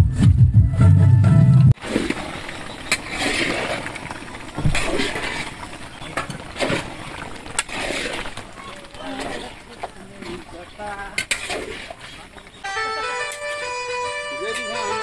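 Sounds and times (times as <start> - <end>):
music with heavy bass: 0.0 - 1.8.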